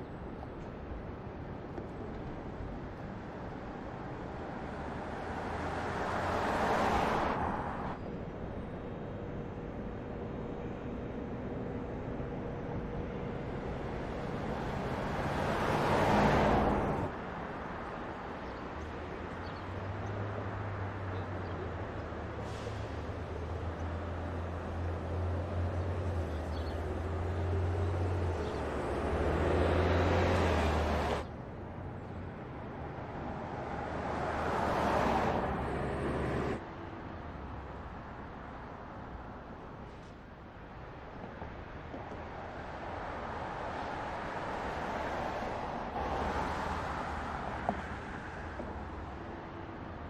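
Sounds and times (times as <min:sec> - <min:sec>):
cars passing by: 0:00.0 - 0:50.0.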